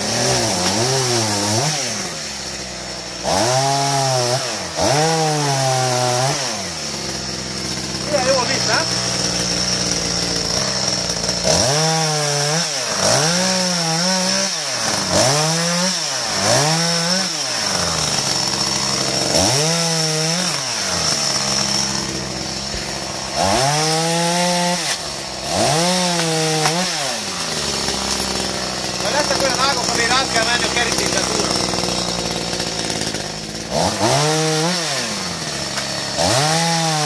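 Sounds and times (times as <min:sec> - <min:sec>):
chainsaw revving: 0:00.0 - 0:37.0.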